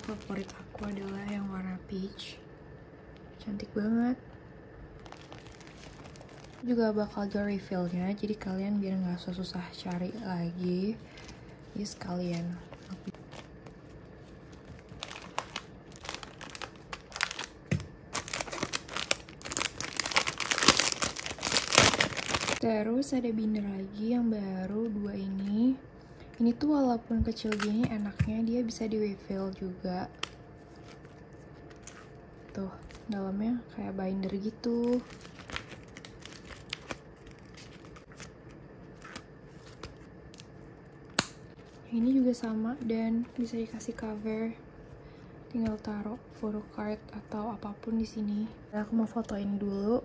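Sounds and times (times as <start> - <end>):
plastic packaging crinkling: 0.0 - 1.8, 5.0 - 6.7, 9.7 - 22.6, 30.1 - 33.2, 34.5 - 44.2.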